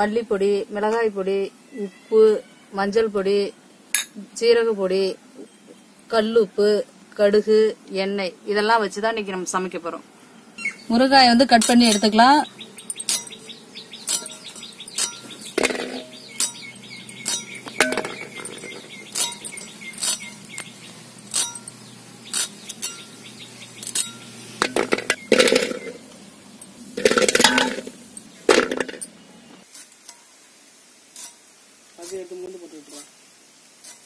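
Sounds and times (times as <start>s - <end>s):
clattering: 14.1s - 16.6s, 17.2s - 21.8s, 23.8s - 26.0s, 26.6s - 29.2s.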